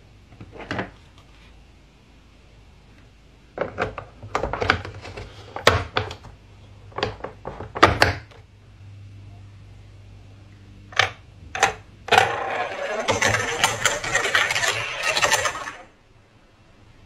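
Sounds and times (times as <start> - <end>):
plastic toy track pieces clacking: 11.6 - 15.9.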